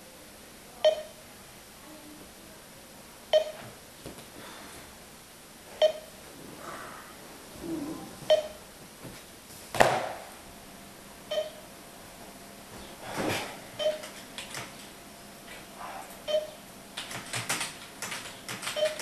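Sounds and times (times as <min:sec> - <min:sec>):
electronic timer beeps: 0:00.8 - 0:01.2, 0:03.3 - 0:03.6, 0:05.8 - 0:06.1, 0:08.3 - 0:08.6, 0:11.3 - 0:11.6, 0:13.8 - 0:14.1, 0:16.3 - 0:16.6, 0:18.8 - 0:19.0.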